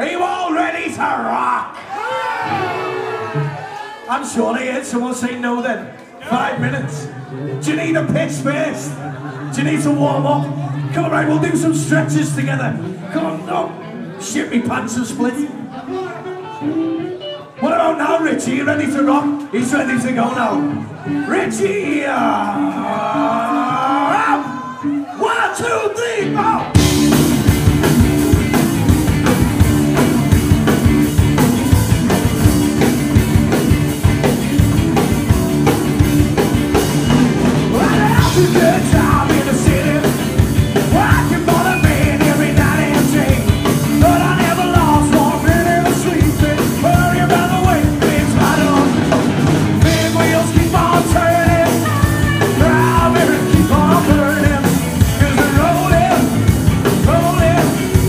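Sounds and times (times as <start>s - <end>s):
rock band playing: 1.8s - 3.8s, 14.6s - 58.0s
person singing: 20.5s - 25.1s, 37.6s - 49.1s, 49.8s - 58.0s.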